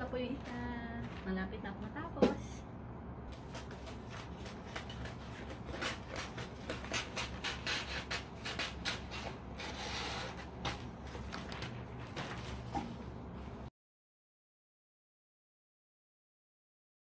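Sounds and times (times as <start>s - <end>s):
wrapping paper rustling: 0.2s - 1.5s, 3.4s - 12.7s.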